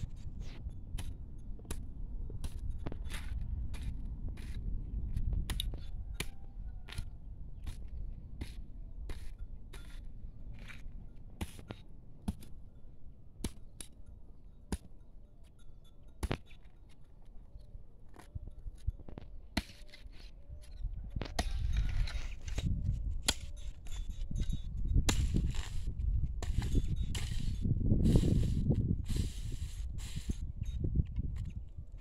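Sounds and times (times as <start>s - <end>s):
rough scraping with low rumble: 0.0s - 6.0s, 20.0s - 32.0s
hoe chopping into soil: 2.4s - 6.3s, 6.9s - 12.6s, 19.5s - 20.2s, 21.2s - 24.1s, 25.1s - 30.4s.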